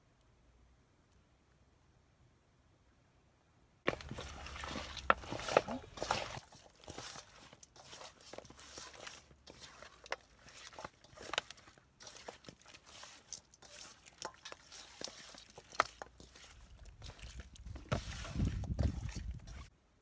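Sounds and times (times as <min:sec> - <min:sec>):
hand mixing meat in metal bowl: 0:03.9 - 0:19.7.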